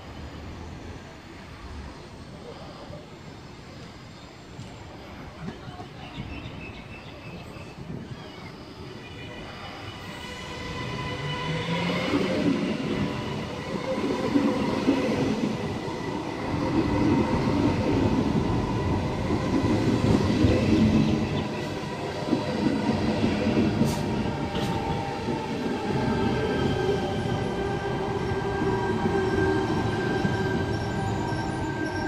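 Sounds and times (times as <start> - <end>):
train wheels rumbling on rail: 9.7 - 32.0.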